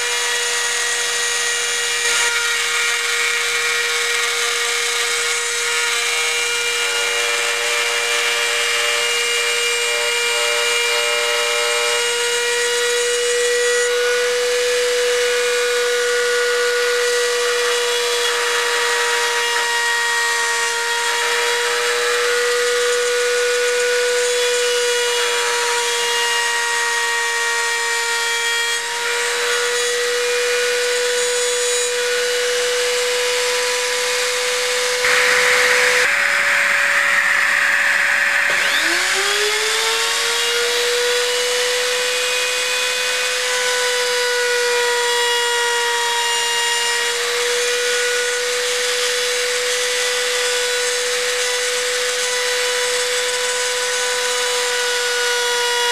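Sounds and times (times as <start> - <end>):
router whining: 0.0 - 55.9
hissing cutting sound: 35.0 - 39.8.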